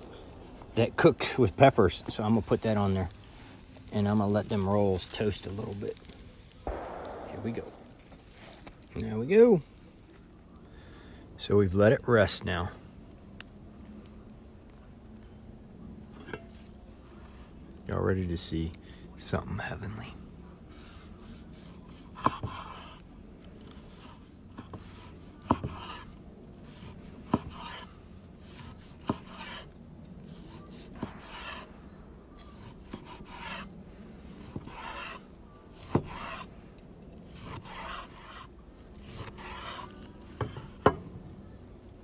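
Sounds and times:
knife sawing through steak: 0:37.3 - 0:40.0.

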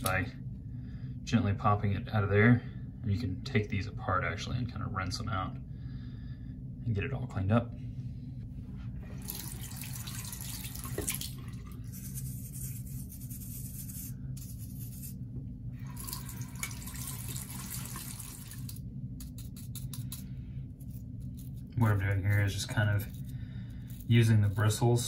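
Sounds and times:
steady low hum: 0:00.0 - 0:25.0
toothbrush scrubbing metal screen: 0:11.9 - 0:15.2, 0:17.1 - 0:23.3, 0:23.9 - 0:25.0.

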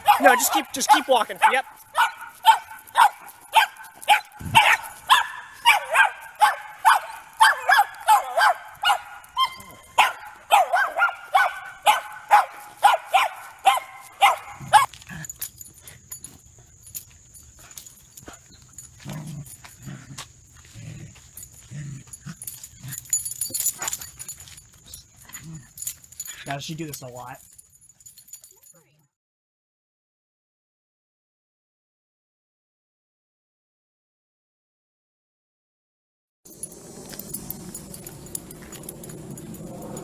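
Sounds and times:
small dog barking rapidly: 0:00.0 - 0:14.9.

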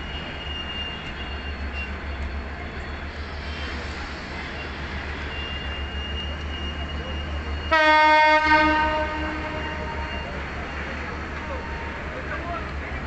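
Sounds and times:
train rumbling along: 0:00.0 - 0:13.0
locomotive horn blast: 0:07.7 - 0:10.3.

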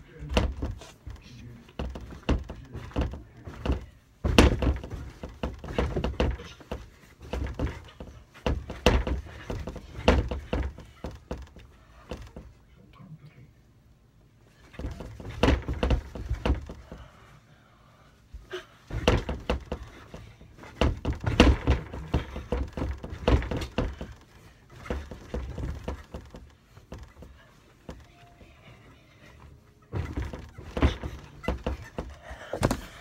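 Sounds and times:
child jumping onto a bed: 0:03.0 - 0:06.5.

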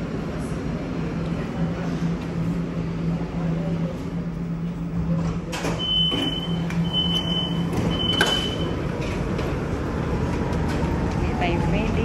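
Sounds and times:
door warning beeps: 0:05.6 - 0:08.8.

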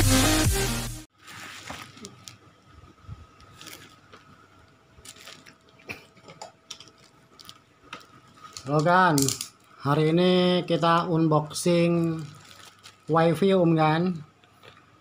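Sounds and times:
plastic parcel crinkling: 0:01.1 - 0:02.6, 0:03.2 - 0:09.9, 0:11.5 - 0:13.6.

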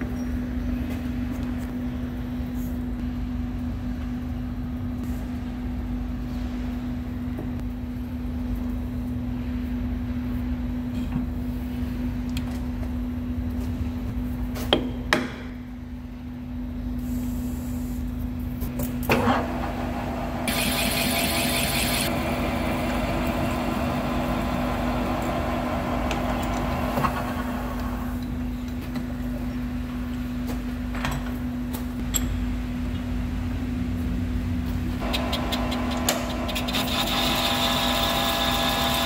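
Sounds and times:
machine humming: 0:19.1 - 0:28.5, 0:35.0 - 0:39.0.

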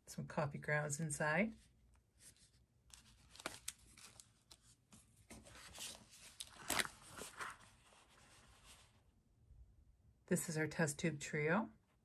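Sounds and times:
paper rustling: 0:02.2 - 0:09.0.

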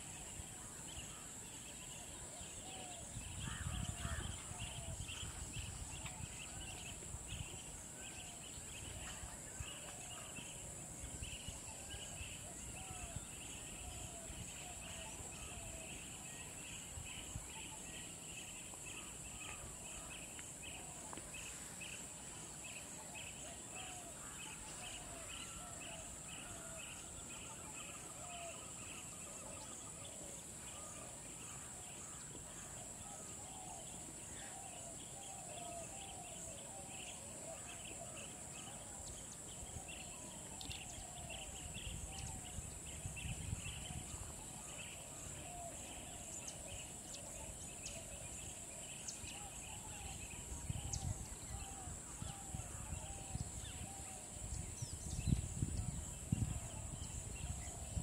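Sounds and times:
insect or bird chirping: 0:00.0 - 0:58.0.

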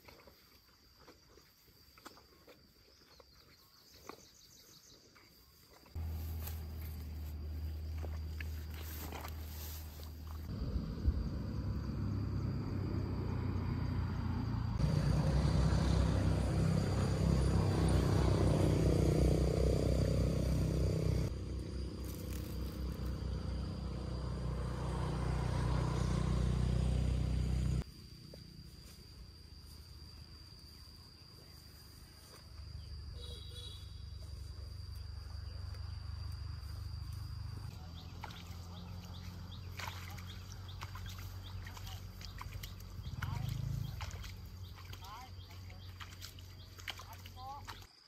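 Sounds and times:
insects droning: 0:00.0 - 0:48.0
low rumble: 0:09.9 - 0:25.0.

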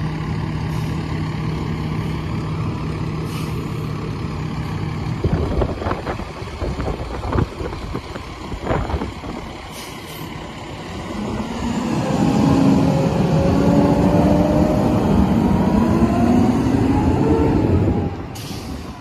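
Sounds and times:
diesel engine driving past: 0:08.3 - 0:19.0.

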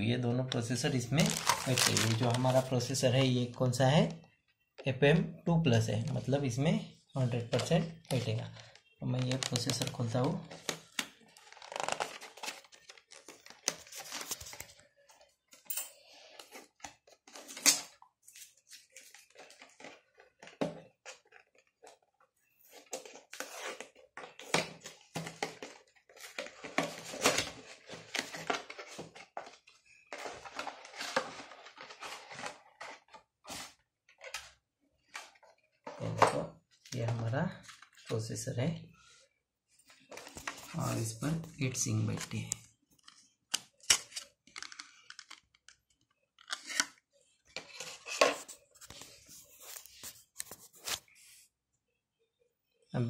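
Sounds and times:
plastic packaging rustling: 0:01.0 - 0:03.3, 0:07.5 - 0:15.4, 0:16.1 - 0:34.3.

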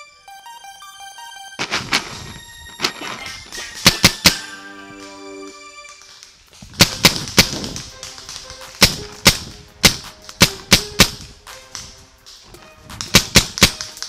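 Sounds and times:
paintball markers firing: 0:02.8 - 0:04.4, 0:05.9 - 0:14.0.

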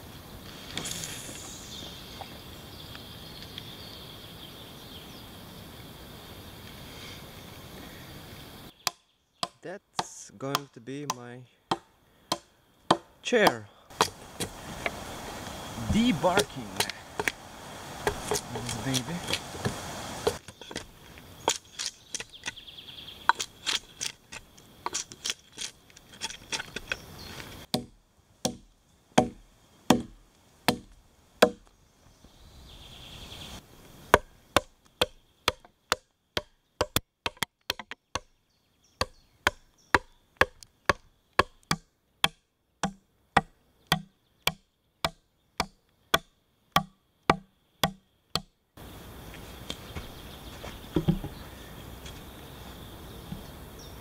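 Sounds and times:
hatchet chopping logs: 0:08.8 - 0:17.4, 0:18.0 - 0:22.6, 0:23.2 - 0:27.0, 0:27.6 - 0:31.7, 0:34.1 - 0:38.3, 0:39.0 - 0:48.6.

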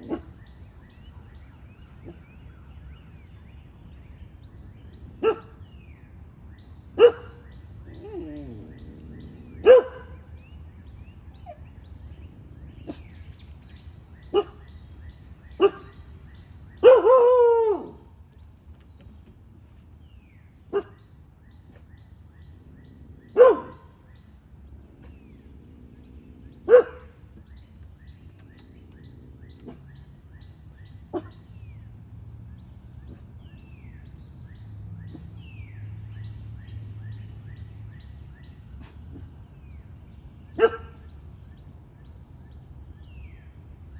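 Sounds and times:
puppy barking: 0:00.0 - 0:00.4, 0:05.2 - 0:05.6, 0:07.0 - 0:10.2, 0:14.3 - 0:14.6, 0:15.6 - 0:16.0, 0:23.4 - 0:23.9, 0:26.7 - 0:27.1, 0:31.1 - 0:31.4, 0:40.6 - 0:41.1
faint birds chirping: 0:00.0 - 0:43.9.

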